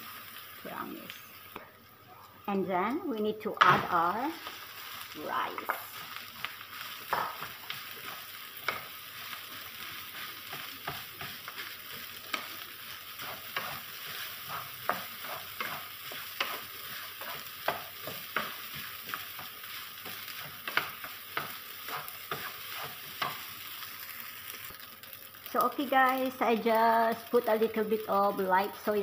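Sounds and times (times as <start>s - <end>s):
oil sizzling: 0.0s - 29.0s
spatula scraping frying pan: 6.0s - 23.8s.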